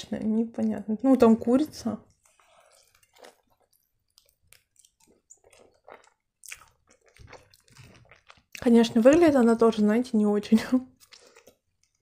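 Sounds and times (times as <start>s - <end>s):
person chewing food: 2.0s - 9.5s, 10.9s - 12.0s.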